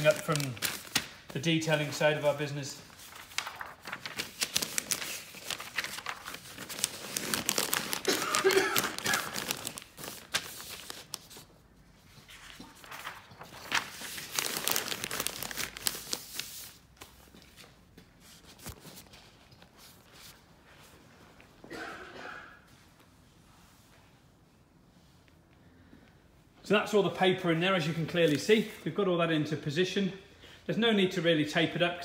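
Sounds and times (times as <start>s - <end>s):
paper crinkling and rustling: 0.0s - 20.4s.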